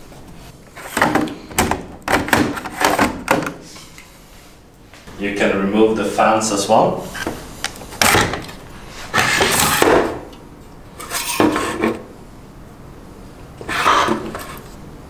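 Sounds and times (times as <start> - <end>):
fan tray sliding and scraping: 7.0 - 10.2, 11.0 - 12.0, 13.6 - 14.8.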